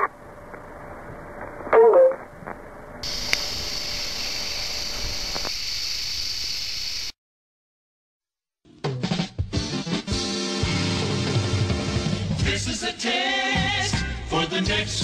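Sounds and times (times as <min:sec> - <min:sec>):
static-like hiss: 0:00.0 - 0:07.2
faint clicks: 0:02.5 - 0:03.5.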